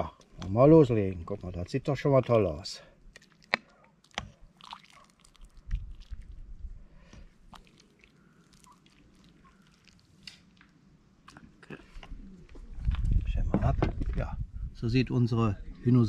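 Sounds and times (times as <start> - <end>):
ladle slopping soup: 3.0 - 12.0.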